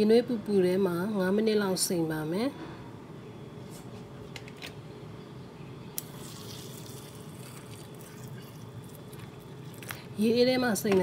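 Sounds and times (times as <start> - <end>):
water pouring into a bowl: 6.1 - 9.9.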